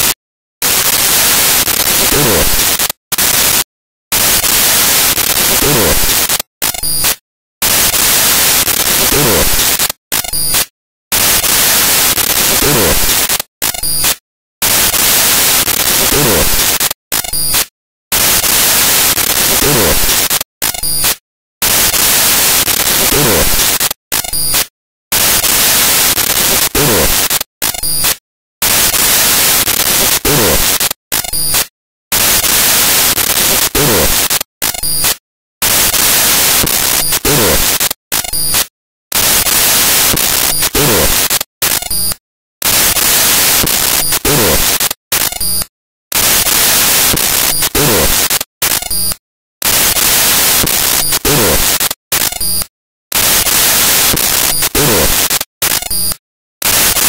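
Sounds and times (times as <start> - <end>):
loud hissing static: 49.8 - 51.7.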